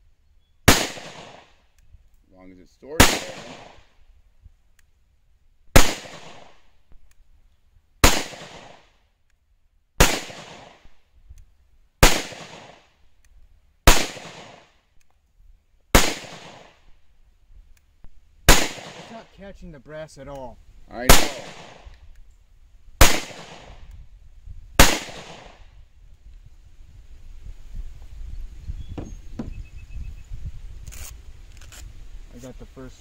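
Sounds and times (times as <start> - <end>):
pistol shots with echo: 0.7 - 1.6, 3.0 - 3.9, 5.8 - 6.6, 8.0 - 8.9, 10.0 - 10.9, 12.0 - 12.9, 13.9 - 14.7, 16.0 - 16.8, 18.5 - 19.3, 21.1 - 21.8, 23.0 - 23.8, 24.8 - 25.7.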